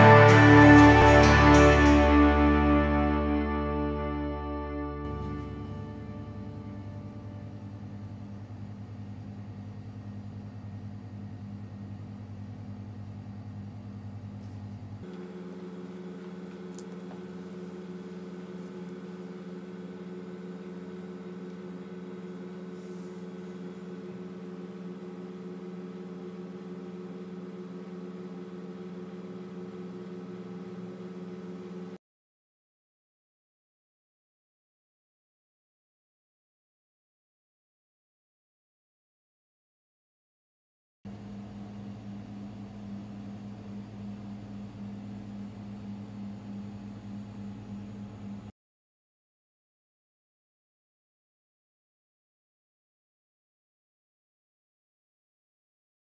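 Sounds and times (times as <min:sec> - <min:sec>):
low mechanical hum: 0:05.1 - 0:32.0, 0:41.1 - 0:48.5.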